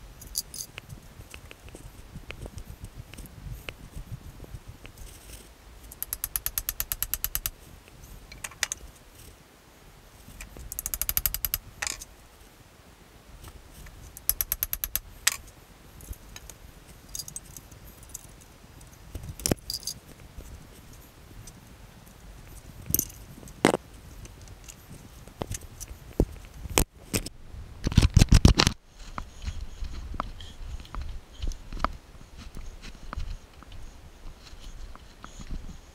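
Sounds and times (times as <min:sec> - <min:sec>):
metal tools knocking and clanking: 0:05.9 - 0:07.5, 0:10.7 - 0:12.0, 0:19.4 - 0:20.0
fast even clicking: 0:05.9 - 0:07.6, 0:10.6 - 0:12.0, 0:14.2 - 0:15.4
metal rattle: 0:05.9 - 0:07.6, 0:10.4 - 0:12.1.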